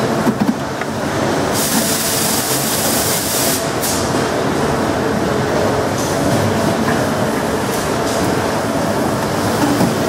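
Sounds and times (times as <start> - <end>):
factory machinery noise: 0.0 - 10.0
injection moulding machine running: 0.0 - 10.0
air hissing: 1.5 - 4.1.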